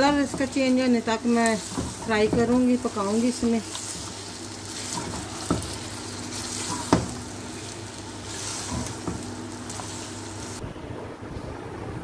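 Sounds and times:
spatula knocking on pan: 0:00.0 - 0:04.2, 0:04.8 - 0:05.9, 0:06.5 - 0:07.3, 0:08.7 - 0:09.3
chicken sizzling in oil: 0:00.0 - 0:10.6.

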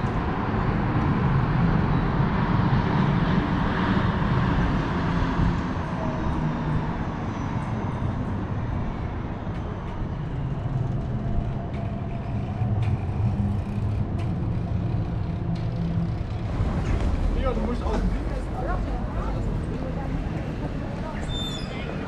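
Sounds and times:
low rumble of passing vehicles: 0:00.0 - 0:22.0.

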